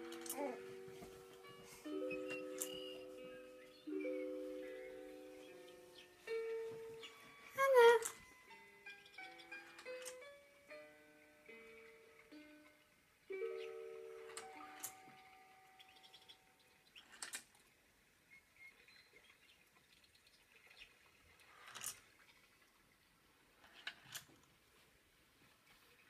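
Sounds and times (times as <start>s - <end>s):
music-box tune: 0.0s - 16.1s.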